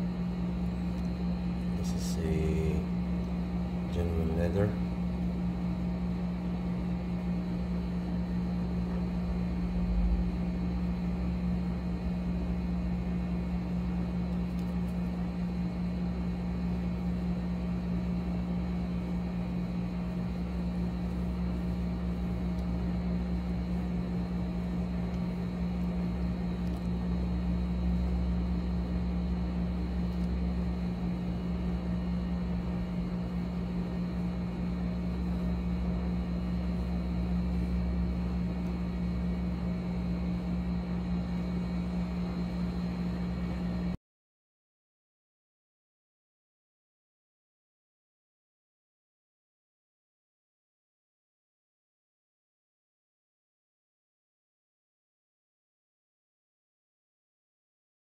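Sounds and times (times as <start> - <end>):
low machine hum: 0.0 - 44.0.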